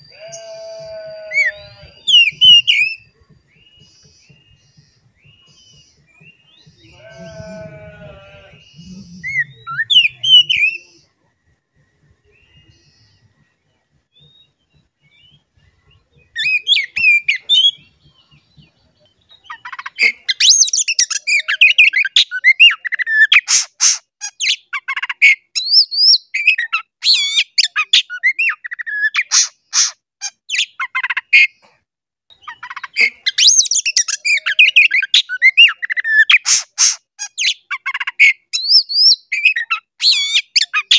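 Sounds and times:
bird singing whistled phrases: 8.7 - 11.0.

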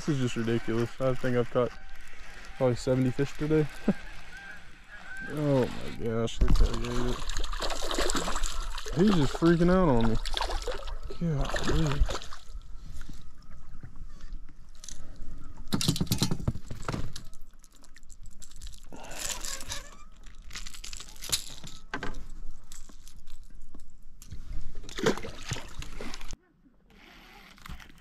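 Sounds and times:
fish splashing in water: 6.5 - 12.6.

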